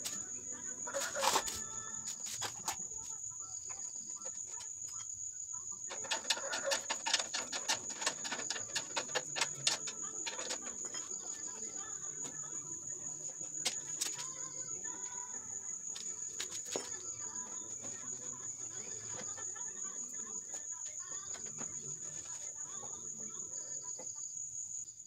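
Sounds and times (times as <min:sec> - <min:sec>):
crickets chirping: 0:00.0 - 0:25.0
clicks and taps on sheet metal: 0:05.9 - 0:12.4.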